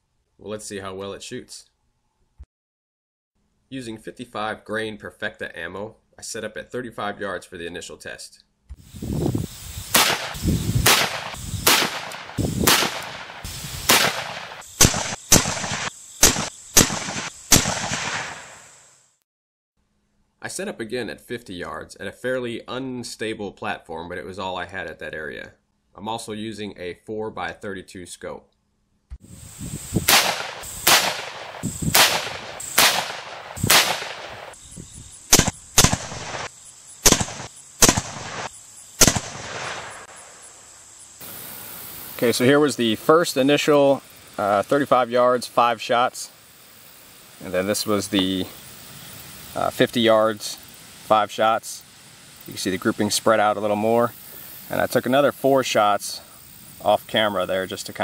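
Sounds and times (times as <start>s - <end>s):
wind rumbling on microphone: 8.7s - 14.4s, 29.2s - 32.6s, 33.4s - 36.4s
sharp rifle shots: 9.9s - 18.7s, 30.0s - 34.6s, 35.3s - 40.2s.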